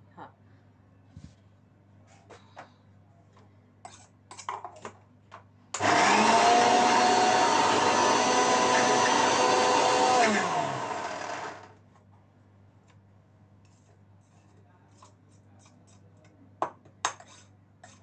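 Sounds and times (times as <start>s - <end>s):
mixer grinder motor whining: 5.8s - 11.8s.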